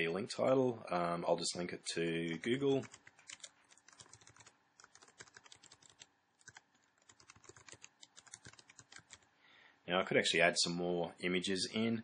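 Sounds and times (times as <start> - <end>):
computer keyboard typing: 2.8 - 9.2.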